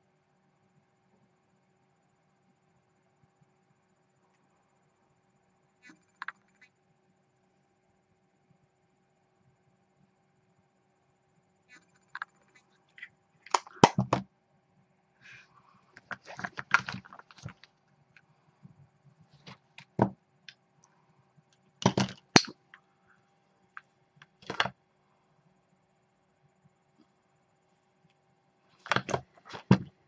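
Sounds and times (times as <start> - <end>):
makeup items clicking and rustling: 16.0 - 17.8, 21.8 - 22.6, 24.2 - 24.7, 28.8 - 29.9.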